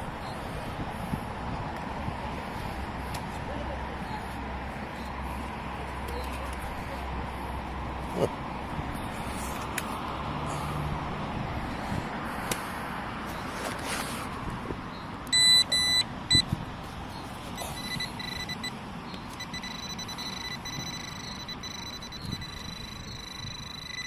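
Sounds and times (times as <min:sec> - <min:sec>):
metal detector beeping: 0:15.3 - 0:16.5, 0:17.1 - 0:24.0.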